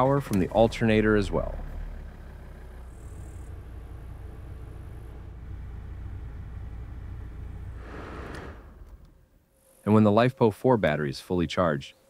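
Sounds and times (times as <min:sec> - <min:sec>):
car engine idling: 0:00.0 - 0:09.2.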